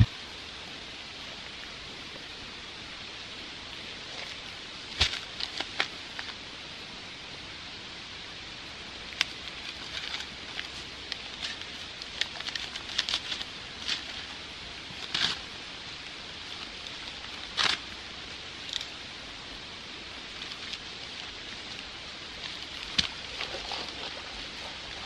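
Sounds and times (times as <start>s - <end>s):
background hiss: 0.0s - 25.0s
paper sack crinkling: 9.4s - 15.5s, 20.4s - 25.0s.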